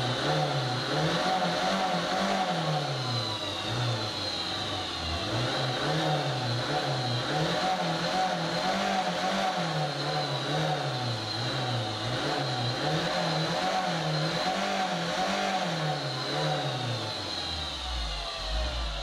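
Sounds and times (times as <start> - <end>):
diesel van engine: 0.0 - 19.0
steady high whine: 16.0 - 19.0.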